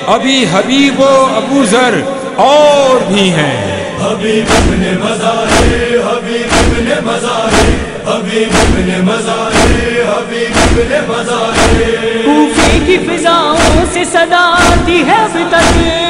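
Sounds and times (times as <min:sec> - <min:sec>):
male chorus chanting a low drone: 0:02.1 - 0:16.0
deep drum beat: 0:04.4 - 0:05.9, 0:06.5 - 0:14.0, 0:14.6 - 0:16.0.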